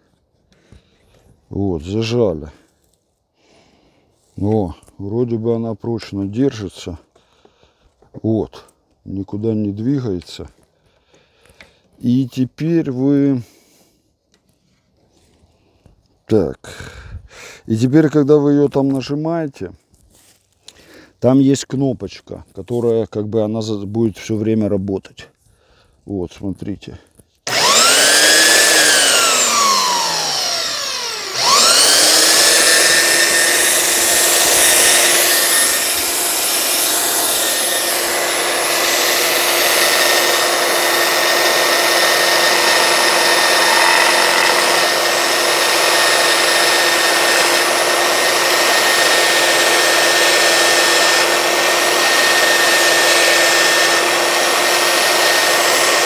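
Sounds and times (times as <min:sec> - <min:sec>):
belt sander motor whine: 0:27.5 - 0:56.0.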